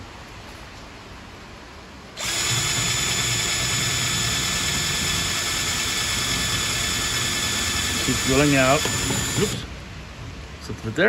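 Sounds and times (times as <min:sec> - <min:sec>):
power drill drilling: 0:02.2 - 0:09.7.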